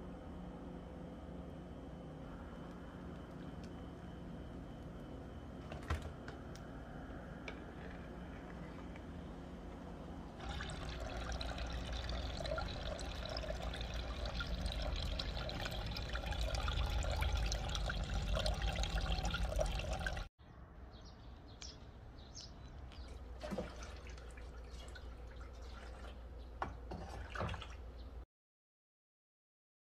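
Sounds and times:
liquid pouring into container: 0:10.4 - 0:20.3
water dripping: 0:10.4 - 0:20.3.

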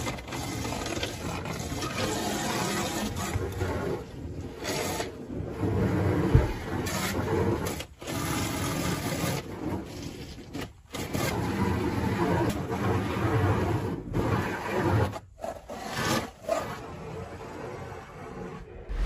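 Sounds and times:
wash mitt scrubbing glass: 0:05.7 - 0:07.7
low thump: 0:06.3 - 0:06.7.

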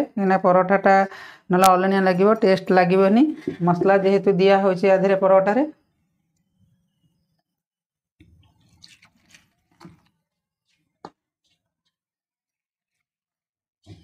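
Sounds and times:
hands squishing dough: 0:08.3 - 0:12.1.

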